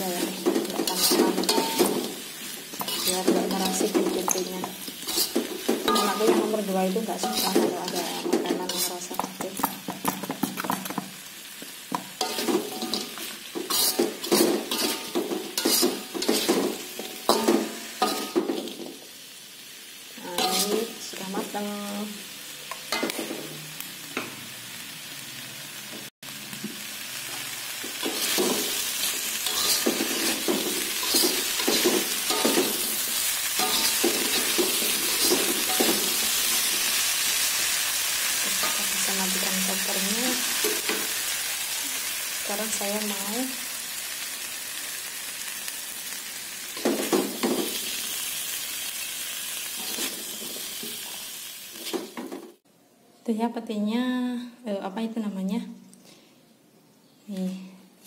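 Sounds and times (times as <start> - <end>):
food sizzling: 0.0 - 52.6
metal spatula scraping a wok: 0.1 - 9.9, 12.2 - 19.0, 20.3 - 21.0, 28.0 - 37.5.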